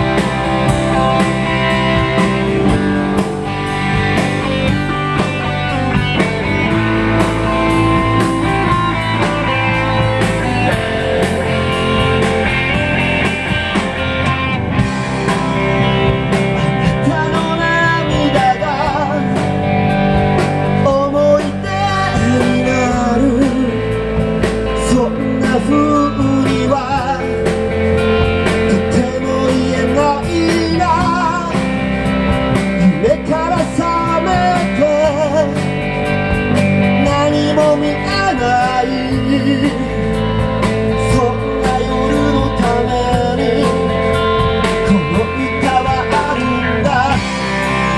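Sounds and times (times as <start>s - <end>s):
drums: 0.0s - 47.9s
electric guitars: 0.0s - 47.9s
man singing: 16.3s - 19.7s, 20.7s - 27.8s, 28.4s - 35.8s, 36.8s - 47.9s.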